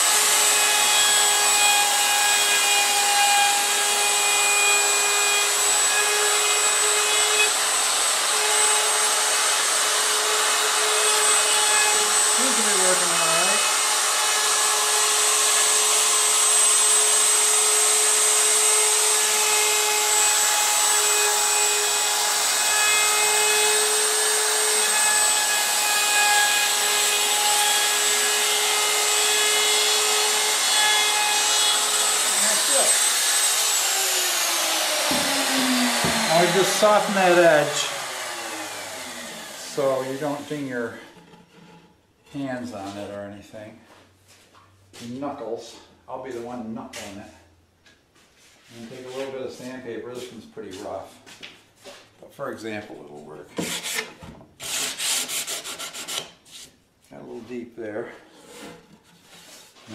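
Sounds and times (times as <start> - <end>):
router whining: 0.0 - 41.9
router bit cutting wood: 0.0 - 42.7.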